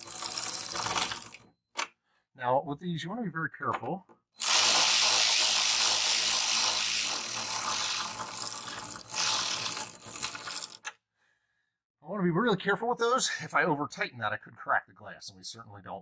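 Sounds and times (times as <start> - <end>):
power ratchet spinning a nut: 0.0 - 1.4, 4.4 - 10.9.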